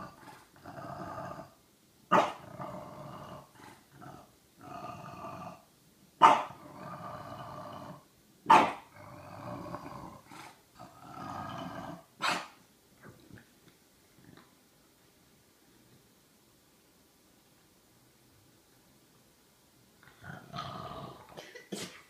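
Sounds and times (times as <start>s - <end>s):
dog growling: 0.0s - 1.6s, 2.2s - 5.7s, 6.4s - 8.1s, 8.7s - 12.1s, 20.0s - 21.4s
dog barking: 2.1s - 2.4s, 6.2s - 6.6s, 8.5s - 8.8s, 12.2s - 12.6s.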